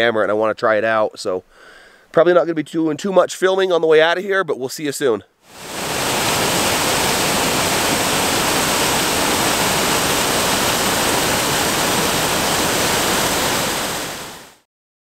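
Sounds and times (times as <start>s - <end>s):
waterfall rushing: 5.5s - 14.6s.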